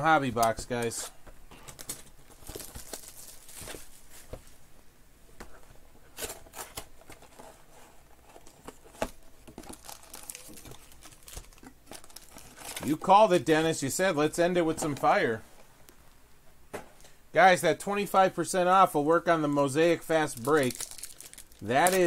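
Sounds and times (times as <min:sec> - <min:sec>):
packaging crinkling: 0:01.7 - 0:04.2, 0:09.6 - 0:13.1, 0:20.2 - 0:22.0.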